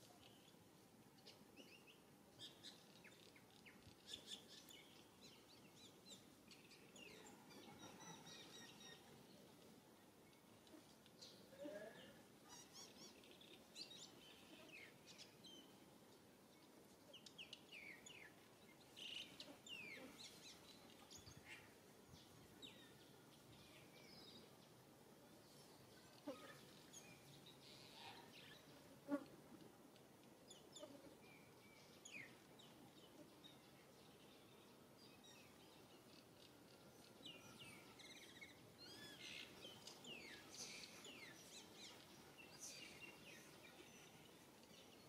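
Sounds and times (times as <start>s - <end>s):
small birds chirping: 30.2s - 45.0s.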